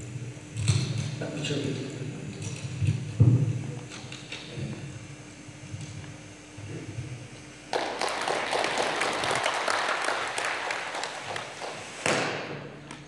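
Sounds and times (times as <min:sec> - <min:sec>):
audience applauding: 0:07.7 - 0:12.1.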